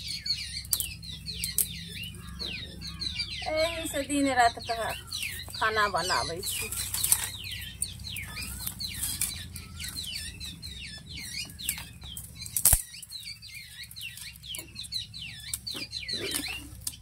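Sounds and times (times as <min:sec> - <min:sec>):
birds chirping: 0:00.0 - 0:17.0
dry twigs rustling and clicking: 0:00.0 - 0:17.0
sharp crack: 0:11.6 - 0:13.3.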